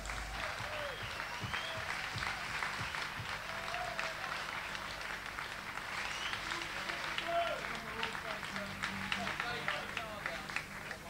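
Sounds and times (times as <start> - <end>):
crowd applauding: 0.0 - 11.0
whoops and whistles: 0.4 - 4.0.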